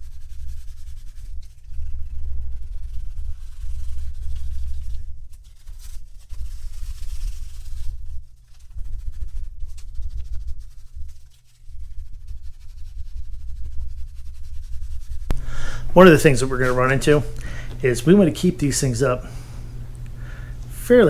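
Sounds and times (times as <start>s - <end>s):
sandpaper rubbing strokes: 0.0s - 15.3s, 15.9s - 17.2s
low rumble: 1.1s - 17.0s.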